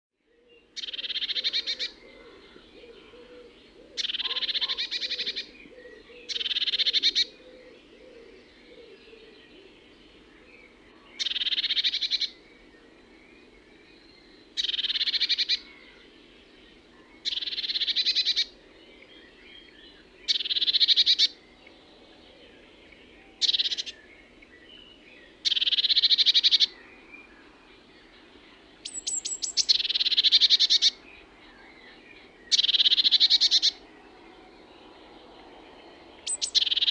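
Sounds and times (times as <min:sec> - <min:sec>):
bird singing trilled phrases: 0:28.8 - 0:31.0, 0:31.7 - 0:33.8, 0:36.2 - 0:36.9.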